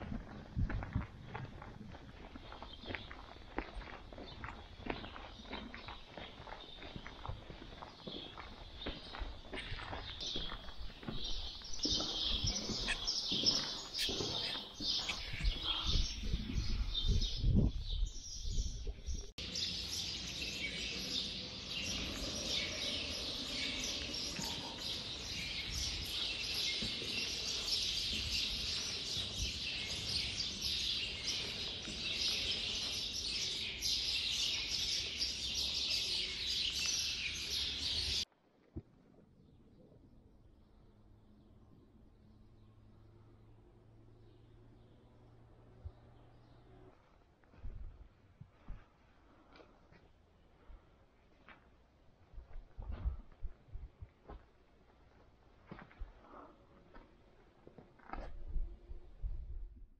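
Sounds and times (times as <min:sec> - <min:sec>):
footsteps on dirt floor: 0:00.0 - 0:16.9, 0:21.7 - 0:34.2, 0:52.4 - 0:58.5
small birds chirping: 0:02.4 - 0:38.2.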